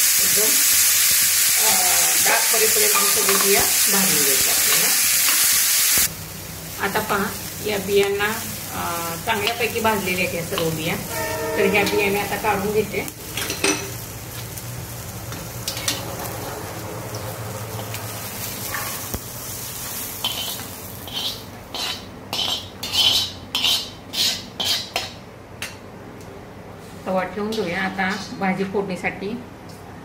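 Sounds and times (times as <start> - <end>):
beans sizzling on hot pan: 0.0 - 24.9
steel spoon scraping: 10.5 - 12.7, 20.2 - 25.2.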